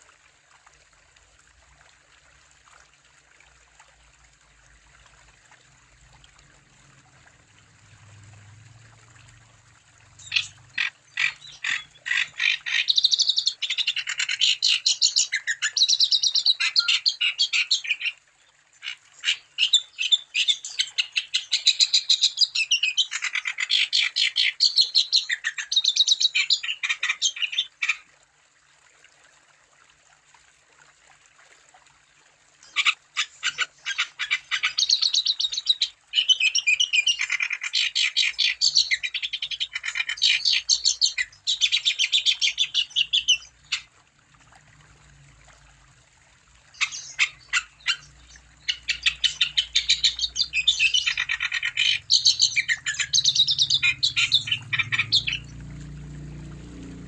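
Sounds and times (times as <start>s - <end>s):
songbird chirping song: 10.0s - 28.0s, 46.6s - 57.0s.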